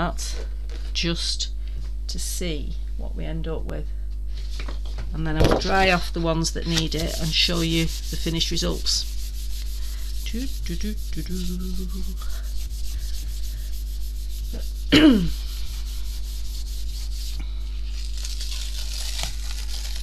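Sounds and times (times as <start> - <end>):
hands rubbing paper: 6.1 - 20.0.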